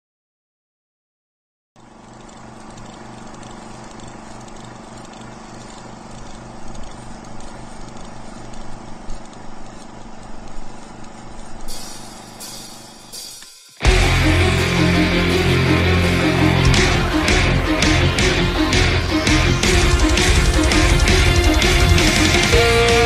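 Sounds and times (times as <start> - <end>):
cymbal crash: 11.7 - 23.0
droning heavy rock intro: 13.8 - 23.0.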